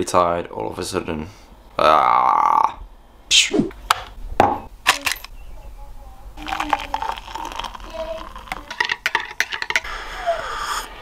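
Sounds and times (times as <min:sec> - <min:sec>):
water pouring into mug: 0:06.4 - 0:09.9.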